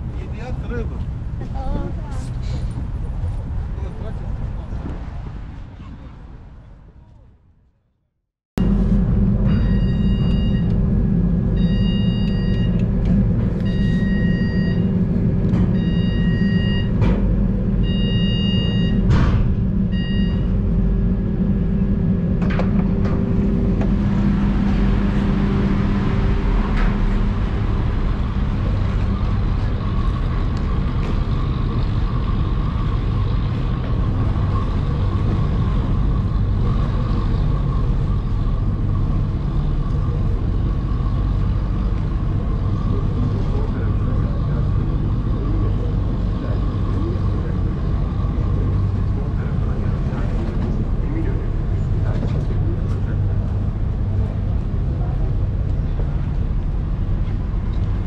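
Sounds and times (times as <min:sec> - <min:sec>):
heavy vehicle engine humming: 0:00.0 - 0:07.2, 0:08.6 - 0:58.0
passing street traffic: 0:00.0 - 0:07.5, 0:08.6 - 0:58.0
electronic warning beep: 0:09.4 - 0:10.8, 0:11.5 - 0:12.8, 0:13.5 - 0:15.0, 0:15.7 - 0:17.0, 0:17.8 - 0:19.1, 0:19.8 - 0:20.6.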